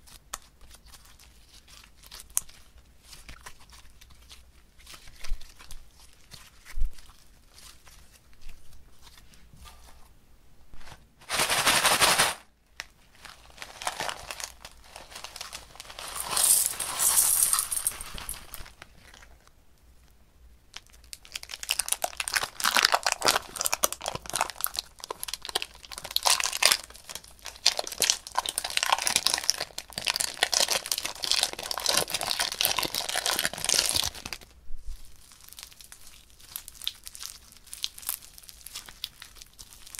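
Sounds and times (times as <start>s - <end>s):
foam-bead slime crinkling: 0.0s - 10.1s, 10.8s - 19.5s, 20.6s - 39.9s
glitter rustling: 13.6s - 19.0s.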